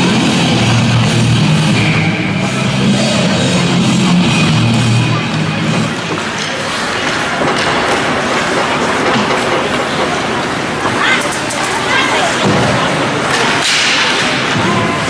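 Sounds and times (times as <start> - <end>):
loud rock music: 0.0 - 6.1.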